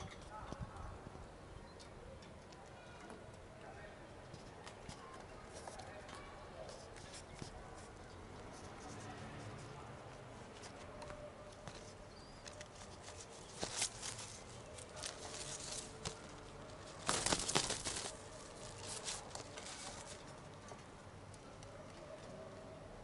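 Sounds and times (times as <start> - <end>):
pigeon feet and beaks tapping: 11.0 - 22.4
wing flapping: 12.6 - 20.3.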